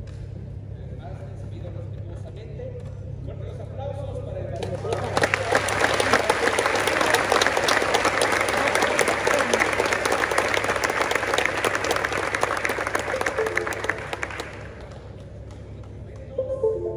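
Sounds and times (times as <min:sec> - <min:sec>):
audience applauding: 0:04.6 - 0:16.9.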